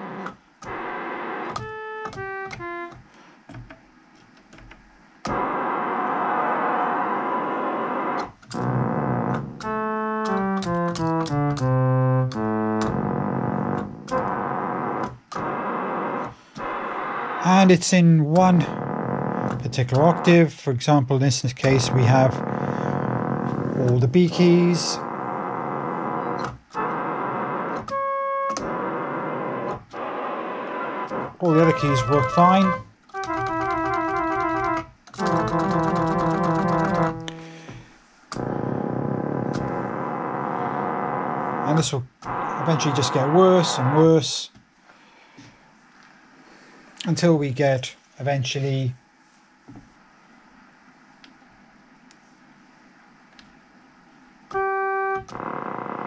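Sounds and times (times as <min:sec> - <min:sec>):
string synthesizer runs: 0:05.3 - 0:37.4.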